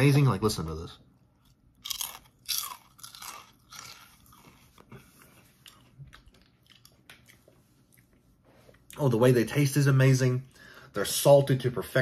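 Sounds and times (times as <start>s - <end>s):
potato chip crunching: 1.4s - 8.0s.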